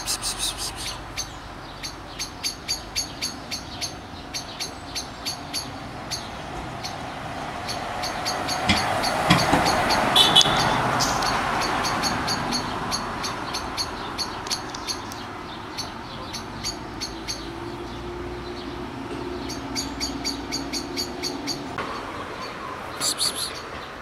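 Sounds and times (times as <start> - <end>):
short high chirps: 0.0 - 1.0, 23.0 - 23.6
passing traffic: 0.0 - 24.0.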